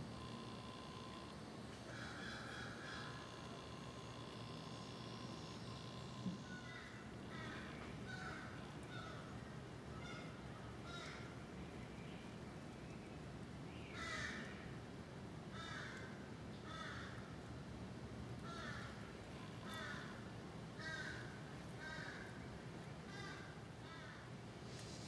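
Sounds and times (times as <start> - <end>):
bird calling: 0.0 - 11.3
low outdoor hiss: 0.0 - 25.0.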